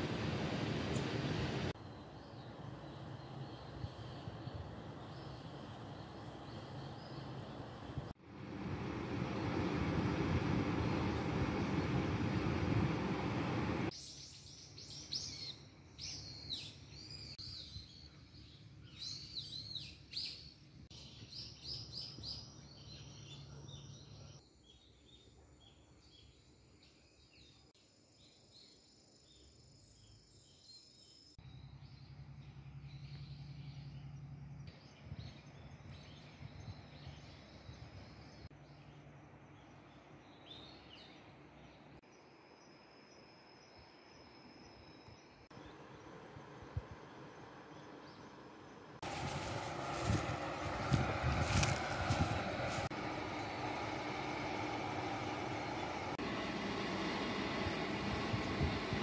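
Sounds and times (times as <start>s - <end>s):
songbirds chirping: 0.0s - 8.1s, 9.2s - 58.6s.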